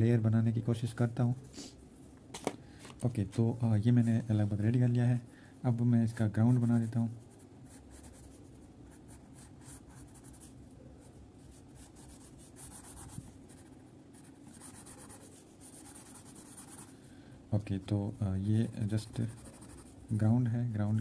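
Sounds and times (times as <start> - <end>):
crayon scratching on paper: 6.4 - 7.0, 11.6 - 16.9, 19.1 - 20.0.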